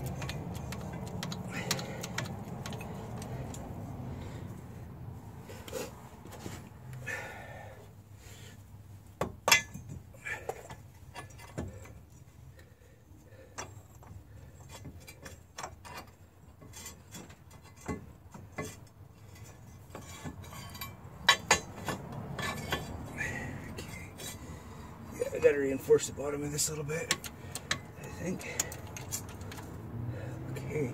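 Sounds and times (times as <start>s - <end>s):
metal clinks and knocks: 0.0s - 4.8s, 9.1s - 25.4s, 26.6s - 29.8s.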